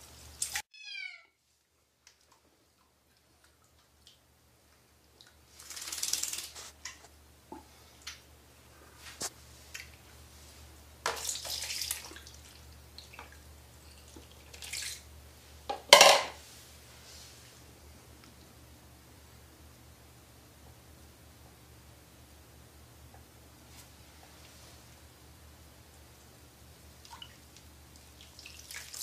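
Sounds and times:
water splashing in a basin: 5.2 - 6.9, 11.1 - 15.1, 27.0 - 29.0.

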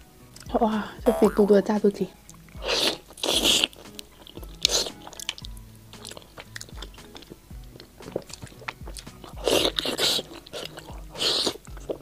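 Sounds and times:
soft background music: 0.0 - 12.0
wet chewing clicks and smacks: 2.2 - 12.0
sharp bite into food: 2.6 - 7.4, 8.0 - 11.6.

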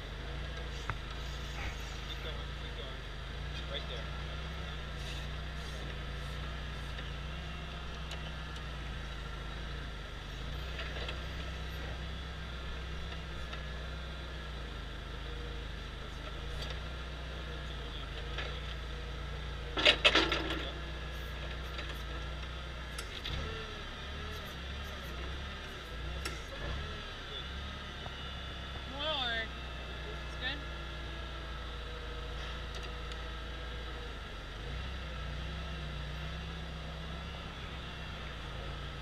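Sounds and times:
forklift humming: 0.0 - 39.0
rattling clatter: 19.7 - 20.8.

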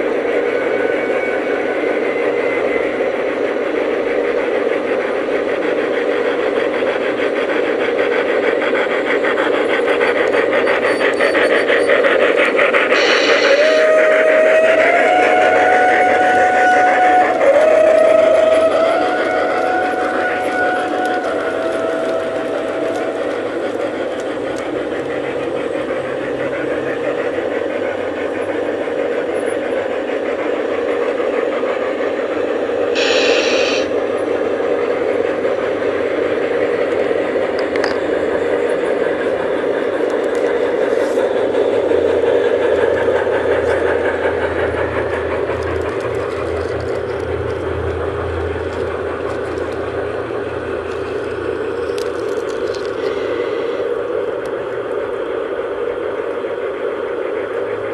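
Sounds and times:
locomotive low hum: 0.0 - 57.9
model trains running on track: 0.0 - 57.9
brief hiss: 33.0 - 33.9.

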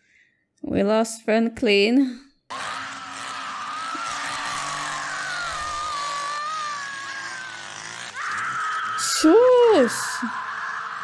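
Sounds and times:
chainsaw engine running: 2.5 - 11.0
woman screaming: 2.5 - 11.0.

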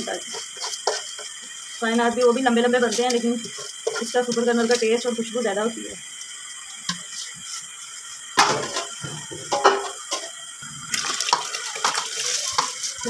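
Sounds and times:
rice splashing into water: 10.8 - 13.0.

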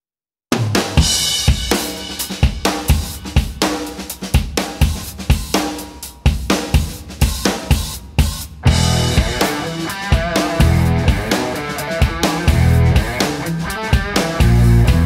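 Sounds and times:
drum kit beat: 0.5 - 15.0.

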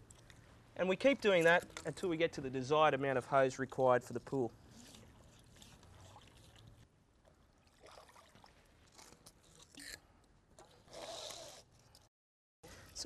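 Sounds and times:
water splashing and trickling: 0.0 - 10.9
sharp splash: 7.7 - 8.7.

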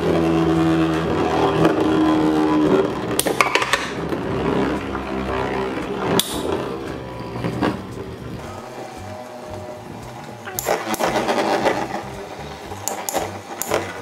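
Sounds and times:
spinning tops whirring and scraping: 0.0 - 14.0
spinning tops clacking together: 10.4 - 14.0.

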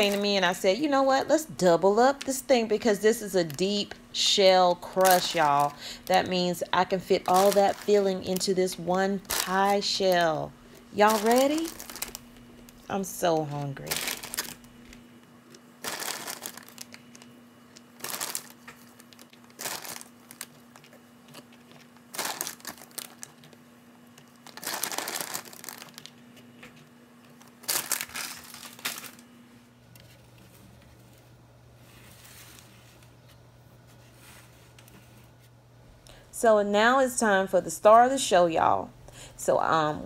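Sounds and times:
aluminium foil pan crinkling: 0.0 - 1.2, 1.9 - 15.0, 15.8 - 23.6, 24.2 - 26.2, 27.3 - 29.3.

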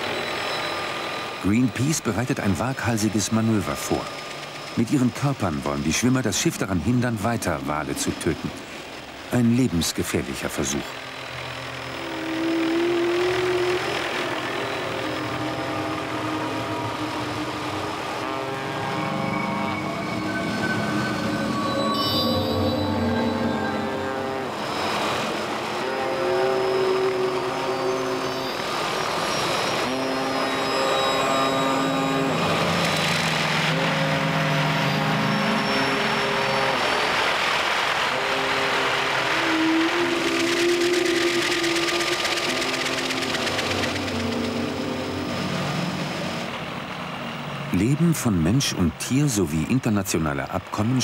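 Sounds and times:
drone of held tones: 0.0 - 5.5, 10.8 - 37.4, 38.1 - 46.5
water rushing: 0.0 - 51.0
motorboat engine running: 10.6 - 17.6, 37.7 - 45.8.

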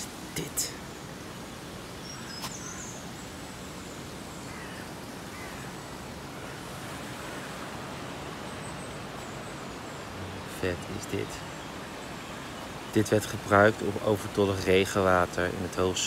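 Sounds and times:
outdoor background hiss: 0.0 - 16.0
faint high bird chirp: 2.0 - 5.8.

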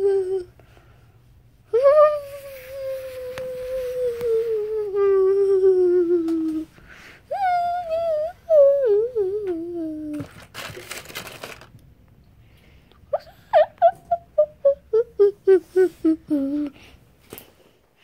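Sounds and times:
handling rustle: 10.2 - 11.8.

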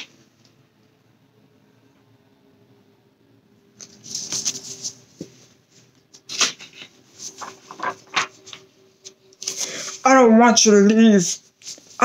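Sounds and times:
pages flapping: 3.8 - 5.3, 6.1 - 9.7
paper pages rustling: 3.8 - 10.0, 11.3 - 12.0.

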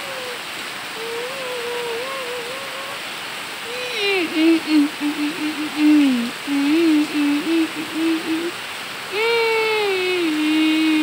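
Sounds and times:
person humming: 0.0 - 11.0
rain falling on leaves: 0.0 - 11.0.

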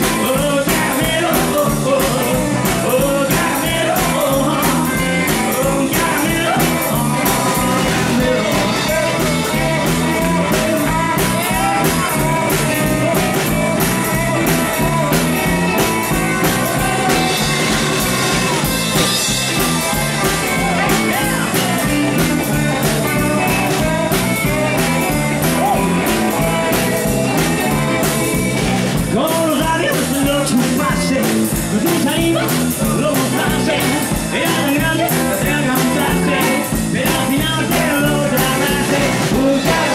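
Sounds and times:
drums and cymbals: 0.0 - 39.9
electric guitar: 0.0 - 39.9
person singing: 0.0 - 39.9.

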